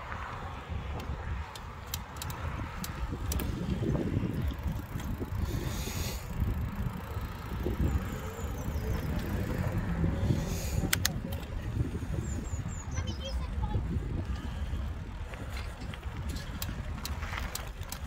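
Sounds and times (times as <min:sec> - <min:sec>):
wind and road rumble: 0:00.0 - 0:18.0
sharp clicks: 0:01.0 - 0:03.6, 0:10.8 - 0:11.6.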